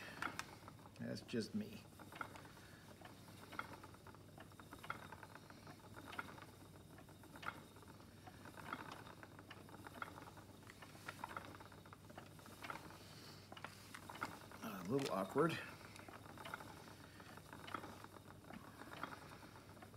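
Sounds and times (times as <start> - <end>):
spinning wheel clicks: 0.0 - 19.9.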